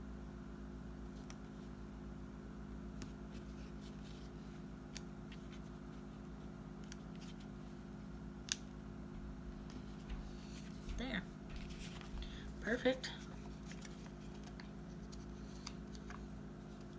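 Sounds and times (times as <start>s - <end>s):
paper rustling: 3.1s - 7.6s, 9.6s - 12.5s, 13.2s - 16.9s.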